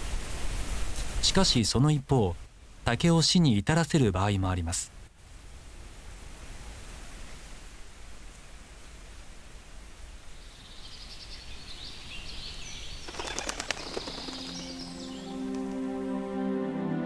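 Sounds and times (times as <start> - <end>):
faint steady background noise: 0.0 - 17.0
songbird chirping: 10.0 - 17.0
wings fluttering: 13.0 - 15.9
soft music: 14.2 - 17.0.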